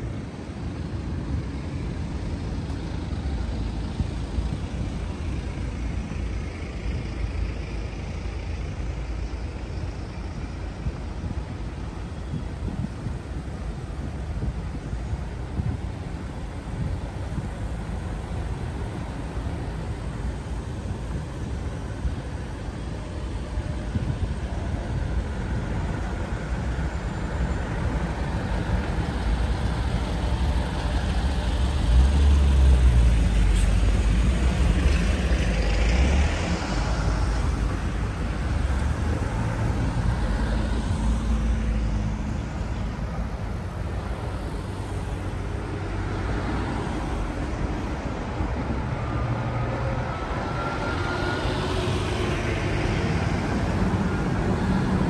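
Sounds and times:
heavy vehicle low rumble: 0.0 - 55.0
road traffic passing: 0.0 - 55.0.

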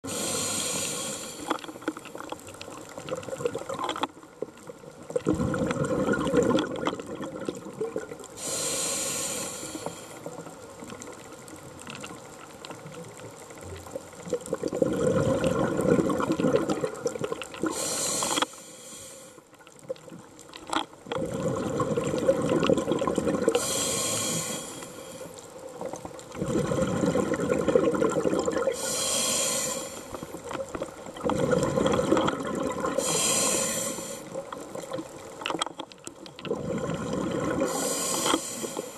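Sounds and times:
high hiss of inhaling: 0.1 - 1.8, 8.4 - 10.3, 17.6 - 19.4, 23.6 - 25.4, 28.7 - 30.4, 33.0 - 34.4, 37.6 - 38.9
bubbling exhaled air underwater: 0.1 - 4.1, 5.0 - 11.2, 13.8 - 19.0, 21.0 - 35.4, 36.2 - 38.9.

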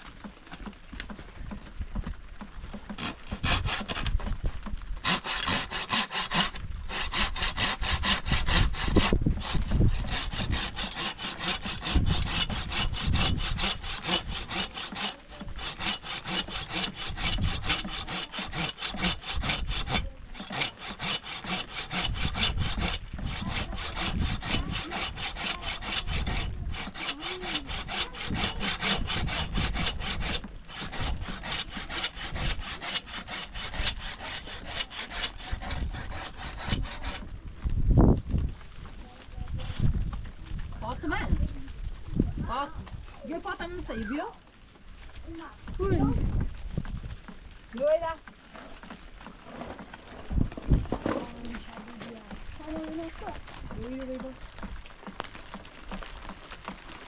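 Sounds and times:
hand saw cutting wood: 2.7 - 37.3, 48.5 - 57.0.

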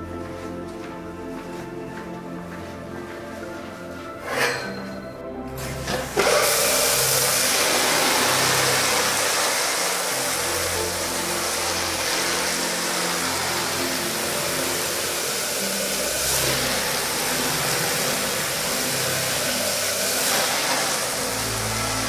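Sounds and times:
cleaning machine running: 5.4 - 22.0
water spraying onto rug: 5.6 - 22.0.

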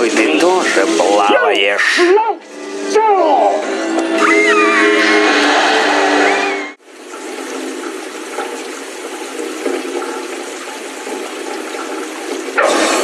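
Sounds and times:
storm water rushing through drain: 6.8 - 13.0.

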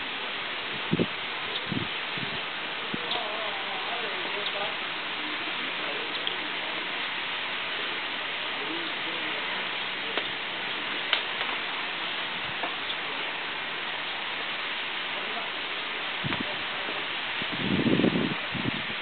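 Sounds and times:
running water hiss: 0.0 - 19.0
faint sharp clicks: 6.2 - 6.4, 10.1 - 10.4, 11.1 - 11.6.

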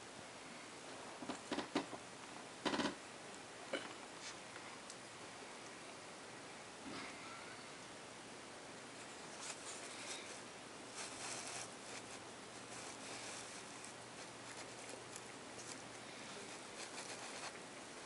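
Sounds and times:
faint hum and hiss: 0.0 - 18.0
fur rustling against camera: 9.0 - 17.6.

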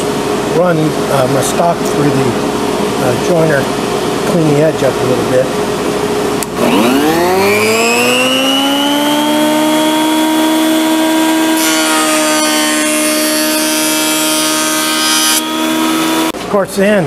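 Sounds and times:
jointer motor whine: 6.4 - 16.4
board being cut with loud hiss: 6.6 - 16.3.

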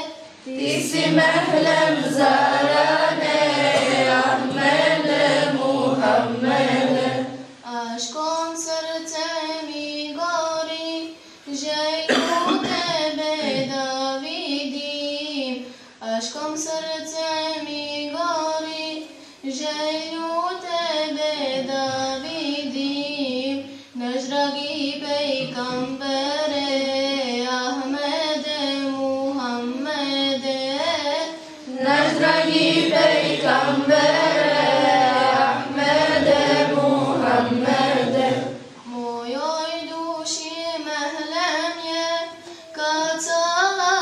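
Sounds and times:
children and women singing a hymn: 0.0 - 9.2, 11.5 - 15.6, 16.6 - 44.0
lower voices singing: 0.4 - 7.6, 31.7 - 39.0.

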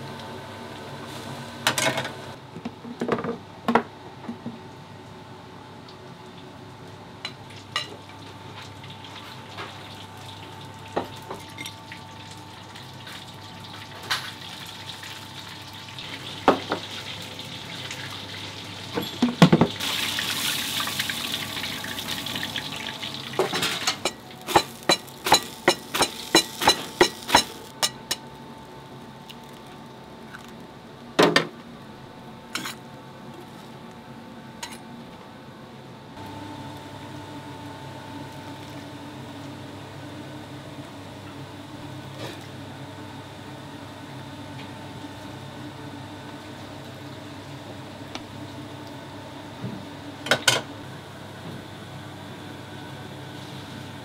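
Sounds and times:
dishes and pots clinking: 19.0 - 19.7, 23.4 - 28.2.

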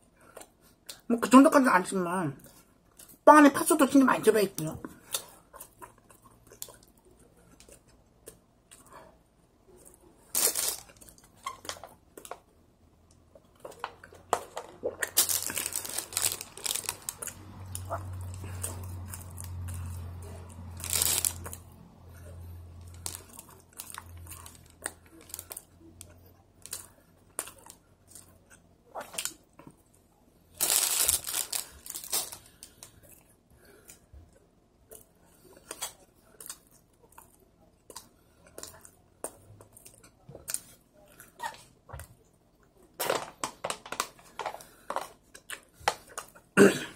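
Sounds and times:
close-up chewing and mouth sounds: 0.0 - 1.1, 2.4 - 3.2, 4.6 - 43.0, 44.0 - 46.6
plastic wrapper crinkling: 10.3 - 12.4, 14.6 - 19.8, 20.7 - 21.6, 30.6 - 32.8.

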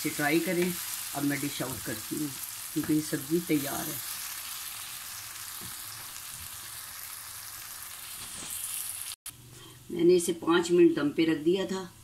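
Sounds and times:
curry sizzling in oil: 0.0 - 9.2.

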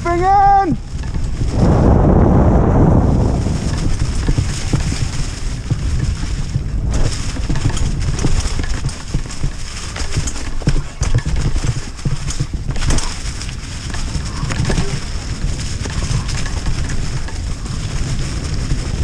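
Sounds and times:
bike knocking and rattling: 0.0 - 1.8, 3.1 - 19.0
bike tyres over leaves and rocks: 0.0 - 19.0
steady low rumble: 0.7 - 9.6.

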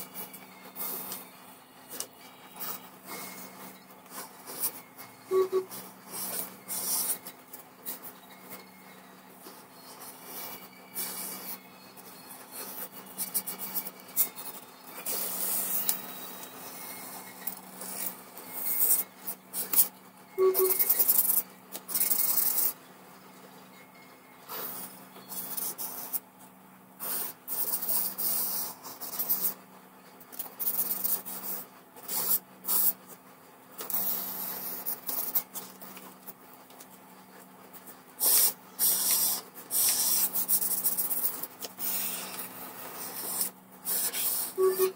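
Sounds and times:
faint steady hum: 0.0 - 44.9
marker scratching across paper: 2.0 - 8.6, 9.4 - 17.2, 17.8 - 22.8, 24.5 - 26.2, 27.0 - 29.6, 30.5 - 33.2, 33.8 - 36.1, 37.8 - 44.9.

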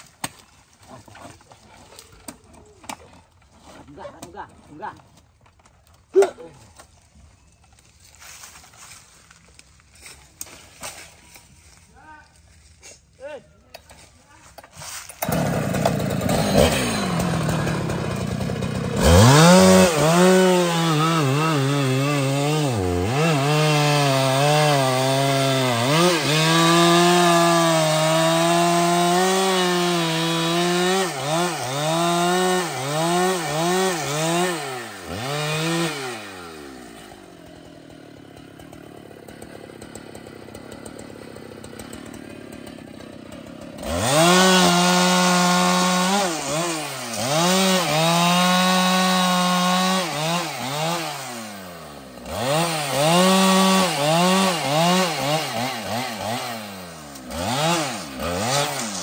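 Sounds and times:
chainsaw cutting wood: 13.7 - 59.0.

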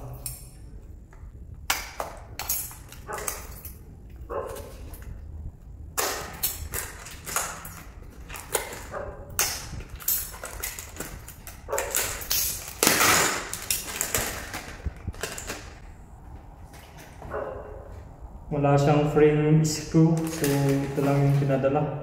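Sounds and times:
metal rails scraping: 6.2 - 15.8
cardboard tearing and rustling: 9.6 - 15.8, 20.2 - 21.6.

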